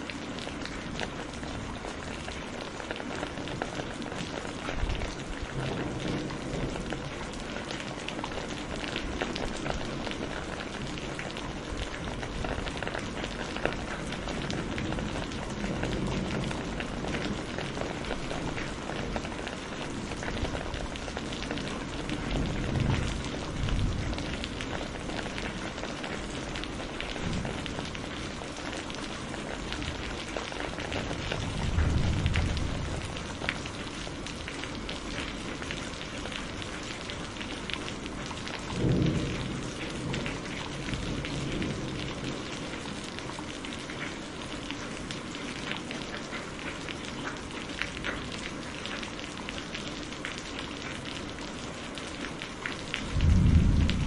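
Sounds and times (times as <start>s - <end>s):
heavy rain falling: 0.0s - 54.0s
low rolls of thunder: 3.9s - 34.8s, 38.1s - 43.2s, 53.1s - 54.0s.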